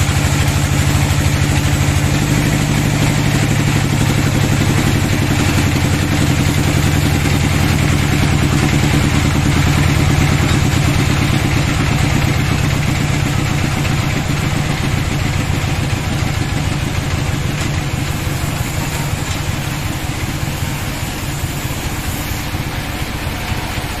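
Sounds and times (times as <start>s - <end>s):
band saw machine hum: 0.0s - 24.0s
saw blade cutting log hiss: 17.8s - 24.0s.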